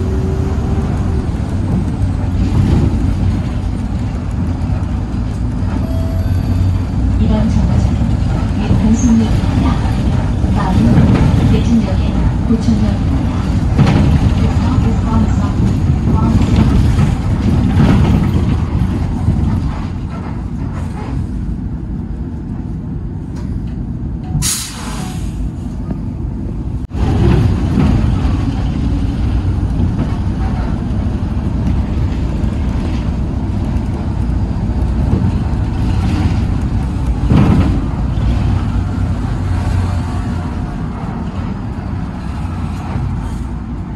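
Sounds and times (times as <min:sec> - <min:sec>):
bus engine rumble: 0:00.0 - 0:43.9
air brake hiss: 0:24.4 - 0:25.5.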